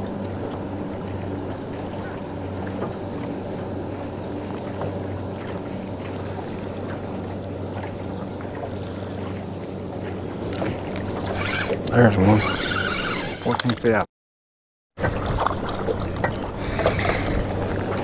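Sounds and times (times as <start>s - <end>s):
electric motor humming: 11.0s - 13.6s, 16.6s - 17.6s.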